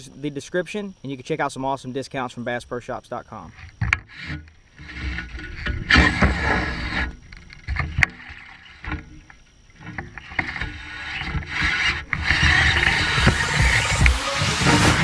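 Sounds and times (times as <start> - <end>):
fishing reel reeling: 3.6 - 15.0
fishing line running off reel: 3.7 - 15.0.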